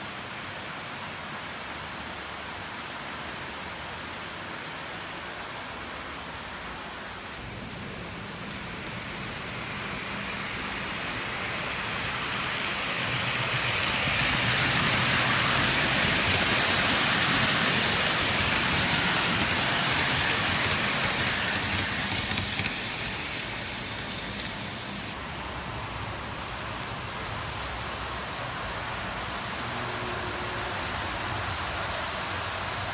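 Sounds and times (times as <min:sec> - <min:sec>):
model train wheels rolling: 0:07.8 - 0:25.8.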